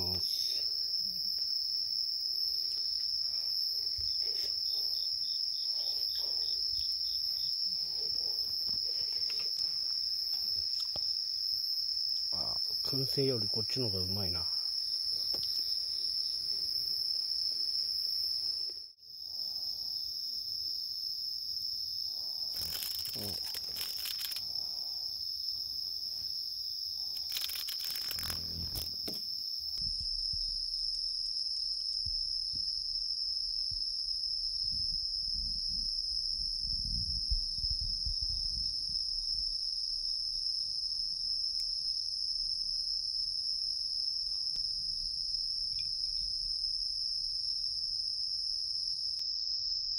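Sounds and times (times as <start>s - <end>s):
night insects chirring: 0.0s - 49.9s
rustling: 22.4s - 24.6s, 27.1s - 29.3s.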